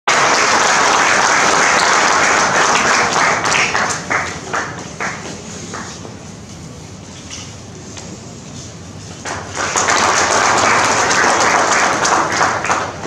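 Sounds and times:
audience applauding: 0.1 - 6.0, 9.2 - 13.0.

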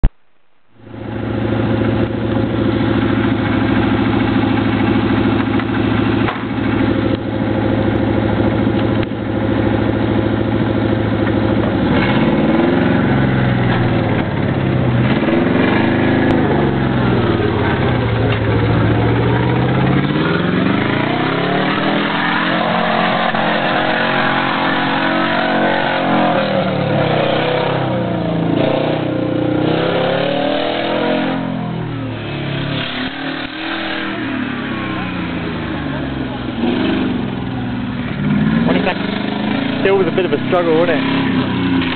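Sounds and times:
engine revving: 0.9 - 41.9.

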